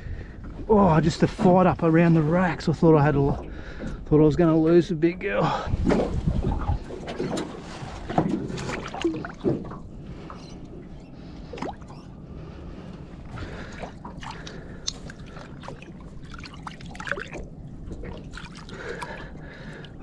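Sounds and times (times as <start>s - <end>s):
water splashing and dripping: 6.2s - 9.8s, 13.2s - 20.0s.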